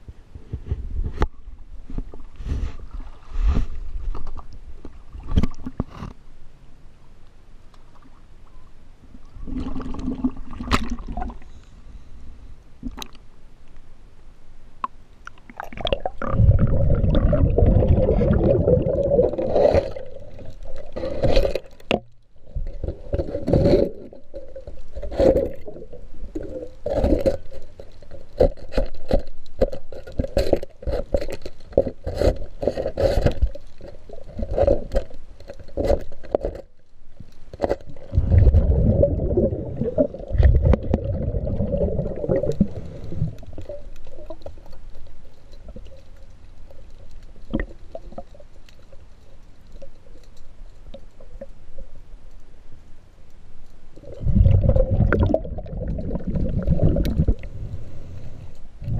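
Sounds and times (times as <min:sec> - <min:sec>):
underwater scraping of boat hull: 0:20.9 - 0:25.7.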